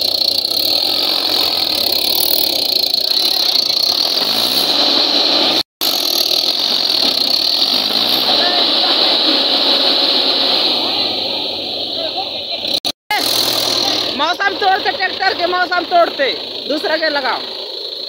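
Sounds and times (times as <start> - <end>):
backhoe loader engine running: 0.0 - 18.0
tractor engine straining: 0.0 - 18.0.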